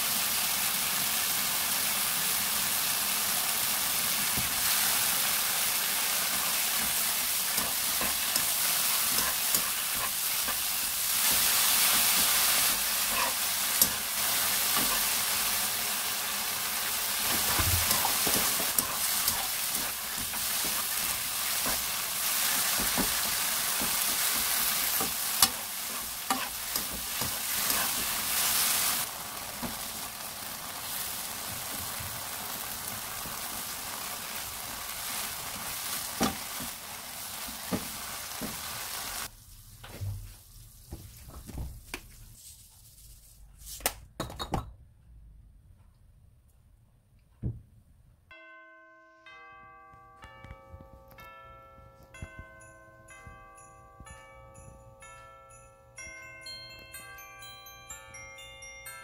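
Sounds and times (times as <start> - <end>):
food sizzling in a frying pan: 0.0 - 41.4
spatula stirring and scraping: 7.5 - 15.2, 17.3 - 29.0.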